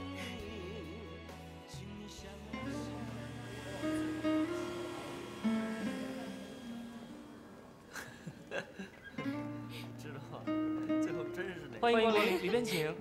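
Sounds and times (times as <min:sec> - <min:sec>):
acoustic guitar melody: 0:02.5 - 0:08.0, 0:09.0 - 0:13.0.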